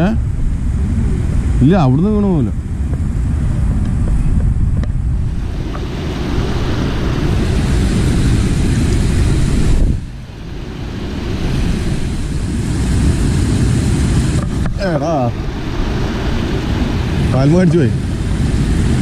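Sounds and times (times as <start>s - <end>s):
wind buffeting microphone: 0.0s - 19.0s
water rushing over weir: 5.2s - 19.0s.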